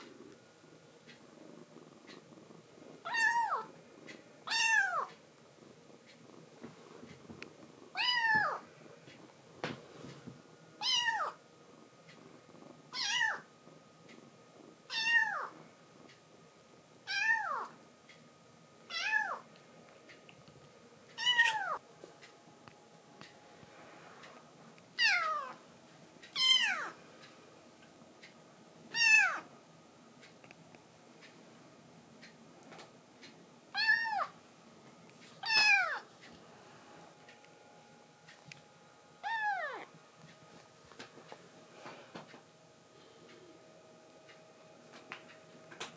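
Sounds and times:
kitten mewing: 21.2 - 21.8, 35.4 - 36.0, 39.2 - 39.9.

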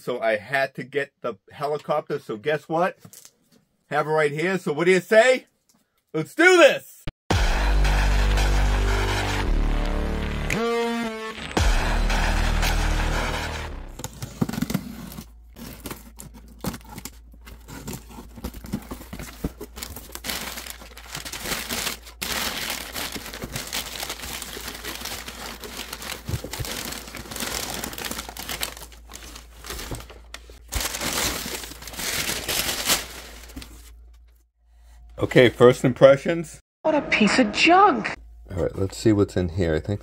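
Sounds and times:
cardboard scraping and knocking: 14.0 - 20.2
packing paper crinkling: 14.1 - 34.3.

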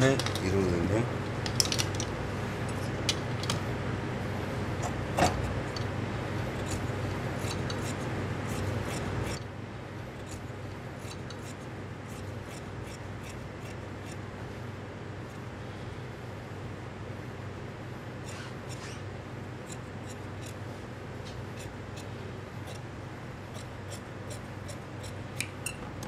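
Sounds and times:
shears cutting fabric: 6.4 - 9.4, 10.2 - 14.2, 18.2 - 25.6.

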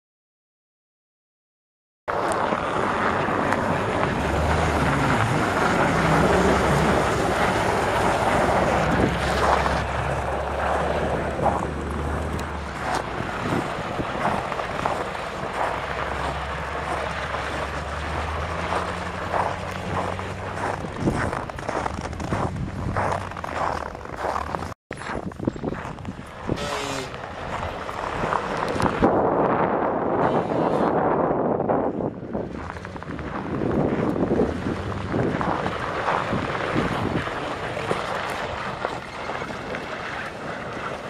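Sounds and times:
vehicle engines humming: 2.1 - 41.0
wind noise on microphone: 2.1 - 41.0.

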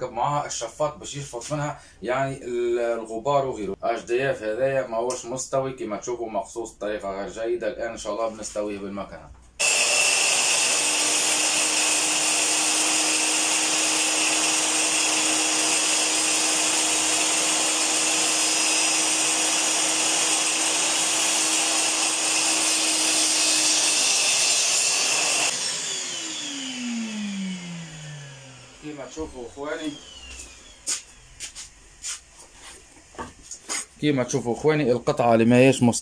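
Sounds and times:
saw motor spinning down: 9.6 - 31.5
circular saw whining: 9.6 - 33.2.

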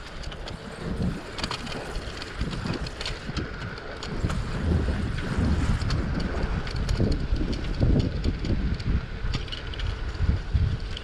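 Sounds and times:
wind buffeting microphone: 0.0 - 11.0
light ticks and rattles: 5.7 - 11.0.

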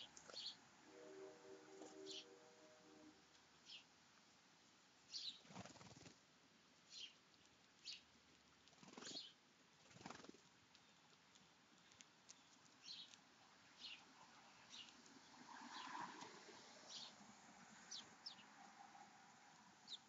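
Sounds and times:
sparrows chirping: 0.0 - 0.6, 2.0 - 2.3, 3.6 - 3.9, 5.1 - 5.5, 6.9 - 7.2, 7.8 - 8.1, 8.9 - 9.4, 11.8 - 15.9, 16.8 - 17.2, 17.8 - 18.6
fluttering wingbeats: 5.4 - 6.2, 8.7 - 10.5.

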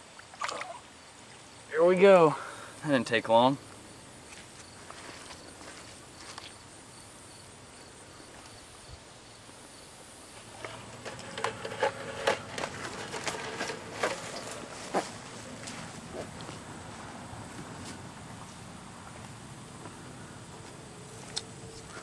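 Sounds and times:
high insect chirping: 0.6 - 16.2
irregular clicks and rustles: 10.4 - 16.6.

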